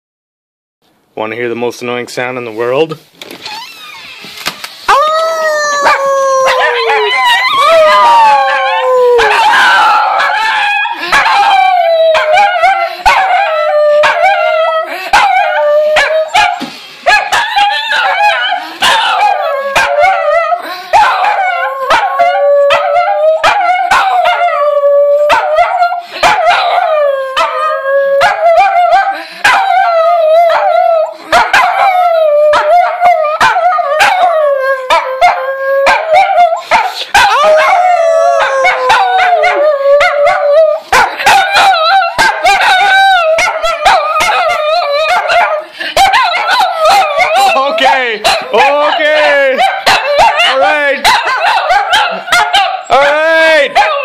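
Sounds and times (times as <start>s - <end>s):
small dogs howling: 4.9s - 54.0s
small dogs yipping and barking: 16.0s - 20.2s, 22.7s - 24.4s, 34.9s - 53.1s, 53.8s - 54.0s.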